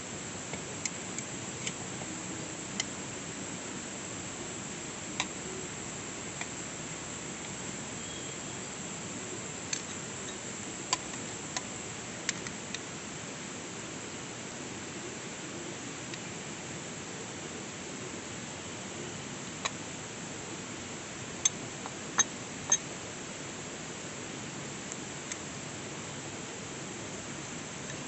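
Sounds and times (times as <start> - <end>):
steady hiss: 0.0 - 28.0.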